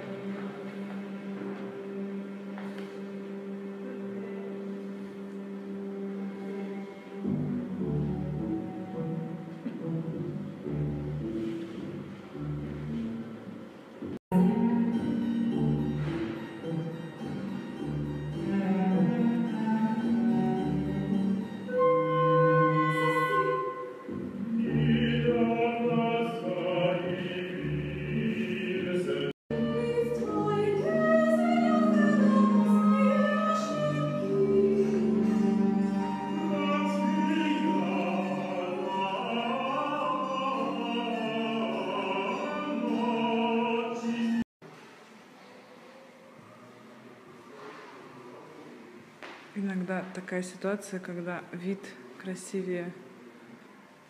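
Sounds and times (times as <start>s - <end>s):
operatic singing with accompaniment: 21.8s - 44.5s.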